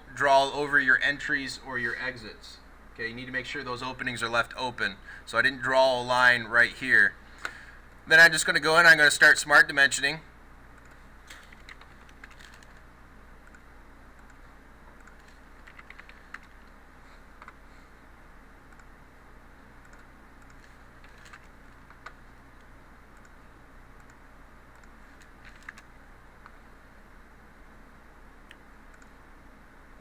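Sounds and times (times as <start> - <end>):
steady low hum: 0.0 - 30.0
keyboard typing: 10.8 - 12.8, 15.0 - 16.8, 17.4 - 17.6, 19.8 - 22.2, 24.0 - 25.9
mouse clicks: 28.5 - 29.2.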